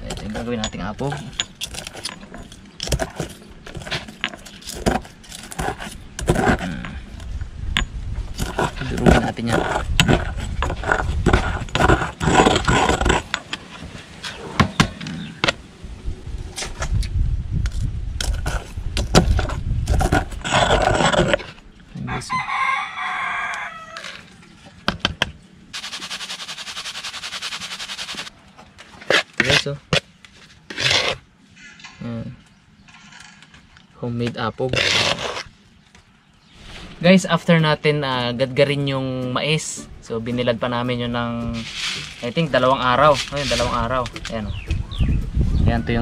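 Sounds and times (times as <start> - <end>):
stone pestle grinding shells: 0.0 - 13.6, 18.2 - 21.6, 25.8 - 28.3
rooster crowing: 22.0 - 24.3
plastic sieve shaking: 25.8 - 28.3.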